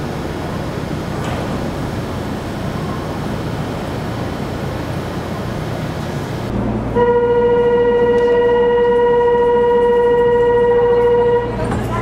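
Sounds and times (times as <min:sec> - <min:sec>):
station platform ambience: 0:00.0 - 0:12.0.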